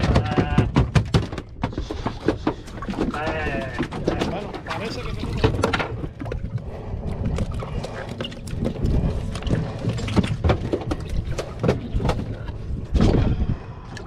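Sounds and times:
gear knocking and clattering: 0.0s - 6.5s
steady low rumble: 4.5s - 14.0s.

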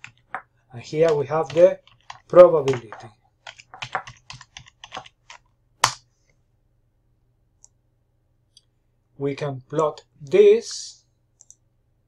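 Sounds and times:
typing on computer keyboard: 0.0s - 6.0s.

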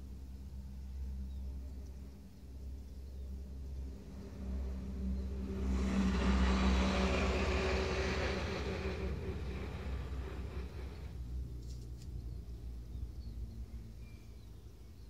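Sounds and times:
engine rumble passing by: 0.0s - 15.0s.

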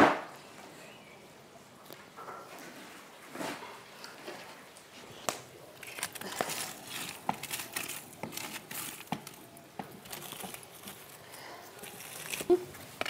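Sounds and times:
handling crinkling: 5.0s - 13.0s.

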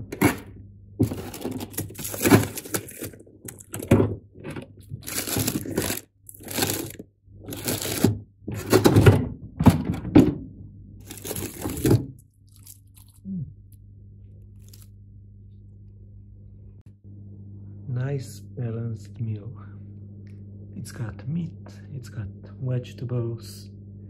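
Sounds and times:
frozen packs clunking: 0.0s - 10.2s, 11.0s - 13.2s
steady low hum: 0.0s - 24.0s
plastic bags crinkling: 1.0s - 4.1s, 4.8s - 8.1s, 11.0s - 13.2s, 14.6s - 14.9s.

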